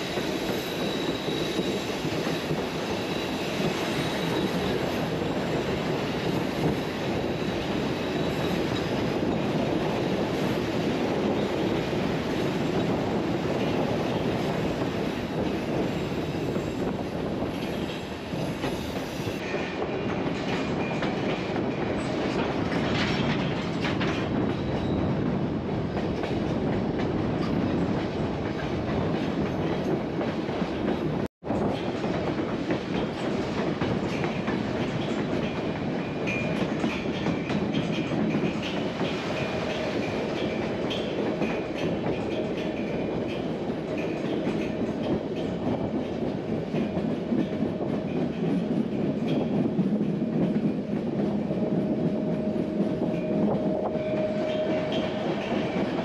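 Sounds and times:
clickety-clack of rail joints: 0.0 - 56.0
train wheels rumbling: 0.0 - 56.0
faint high wheel squeal: 0.2 - 4.9.

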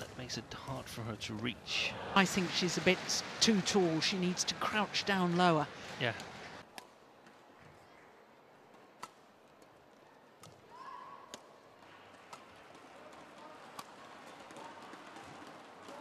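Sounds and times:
faint crowd noise: 0.0 - 16.0
racket striking shuttlecock: 12.2 - 16.0.

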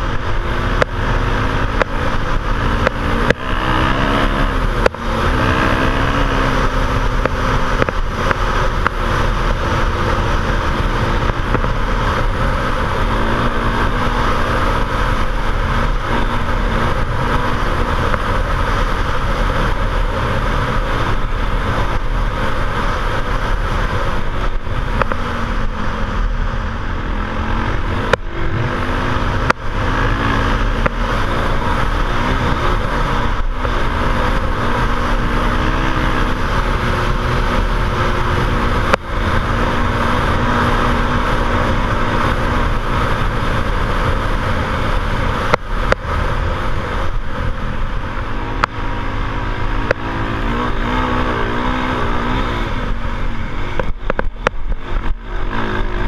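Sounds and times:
motorcycle engine running: 0.0 - 56.0
wind noise on microphone: 0.0 - 56.0.

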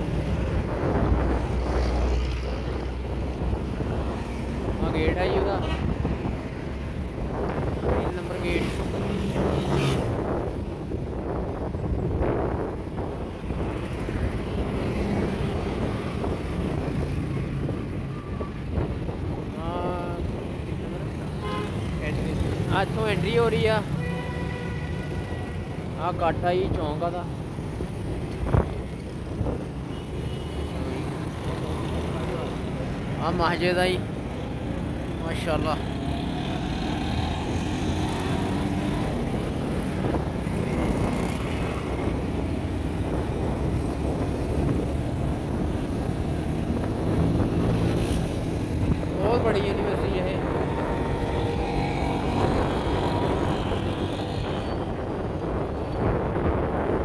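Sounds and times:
wind buffeting microphone: 0.0 - 22.7, 27.4 - 29.9, 37.0 - 57.0
car engine and tyres rumbling: 0.0 - 57.0
vehicle road noise: 0.0 - 57.0.

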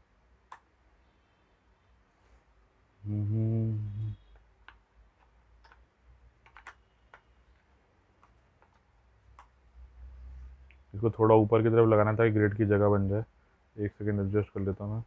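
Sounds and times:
man humming: 3.0 - 4.3
plastic clicks and taps: 4.3 - 9.6.

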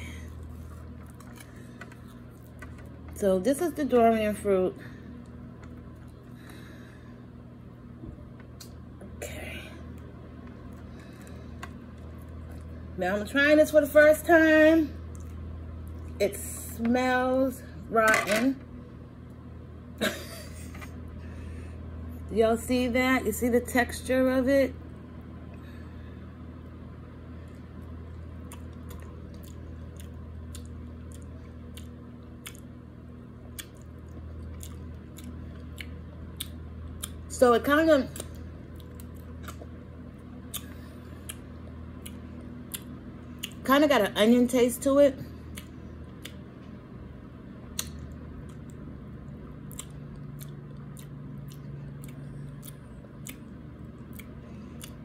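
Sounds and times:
person chewing soft food: 0.0 - 3.1, 9.9 - 12.9, 15.0 - 16.2, 27.4 - 37.3, 38.2 - 43.6, 45.3 - 46.8, 47.6 - 55.0
mouth clicks and smacks: 28.4 - 32.8, 40.4 - 43.6, 45.5 - 46.4, 47.7 - 48.8, 49.6 - 55.0.

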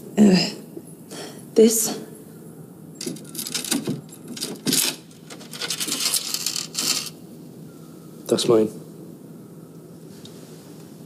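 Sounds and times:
metal chain rattling: 3.0 - 7.2.

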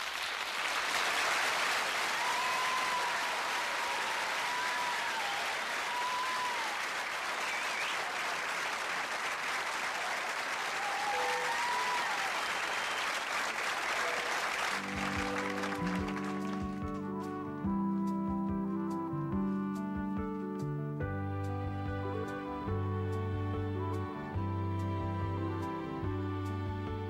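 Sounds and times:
audience applauding: 0.0 - 17.4.

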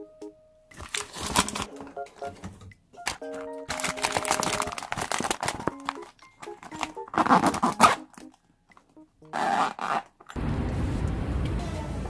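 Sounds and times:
plastic pouch crinkling: 0.8 - 1.7, 3.1 - 8.4, 9.3 - 10.3.

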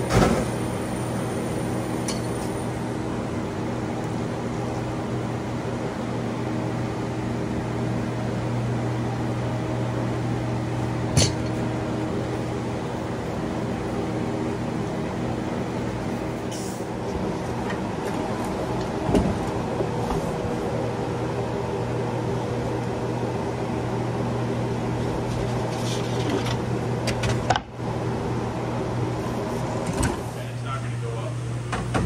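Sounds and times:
mechanical hum: 0.0 - 32.0.

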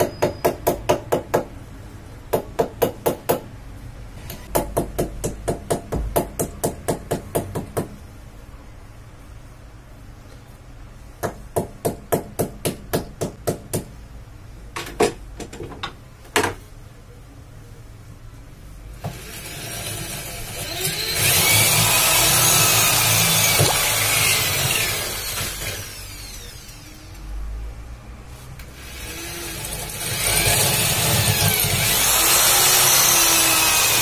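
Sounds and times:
electric drill boring into wall: 19.0 - 26.9, 28.7 - 34.0.

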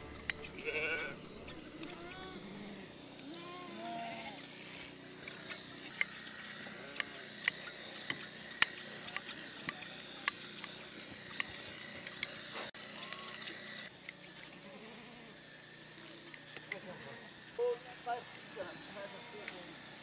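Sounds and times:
shears snipping fleece: 0.0 - 20.0.

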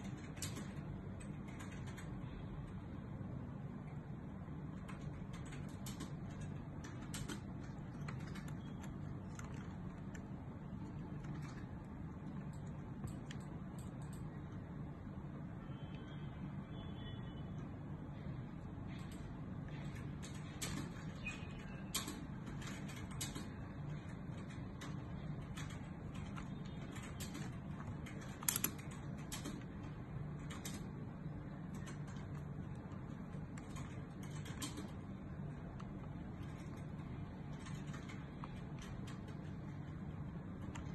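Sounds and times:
steady low hum: 0.0 - 40.9
faint clicks and rustles: 5.5 - 14.3.

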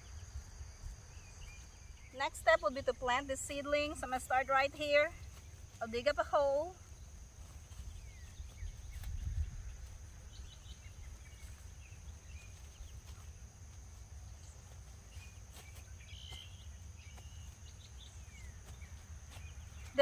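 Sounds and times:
insect drone: 0.0 - 20.0
bird chirps: 14.3 - 20.0.

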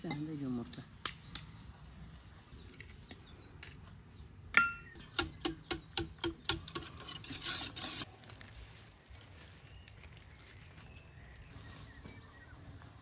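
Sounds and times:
whisk clicking against metal pot: 5.0 - 8.0.

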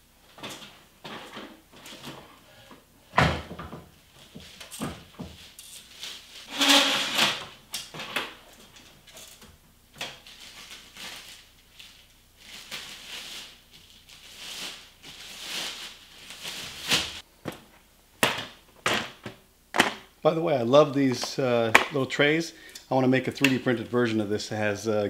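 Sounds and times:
plastic wrapping crinkling: 4.2 - 6.5, 10.1 - 17.3.

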